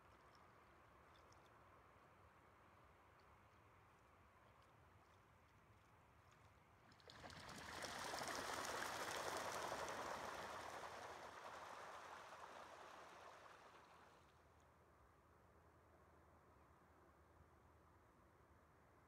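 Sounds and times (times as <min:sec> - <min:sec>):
ducks splashing on water: 0:06.9 - 0:14.3.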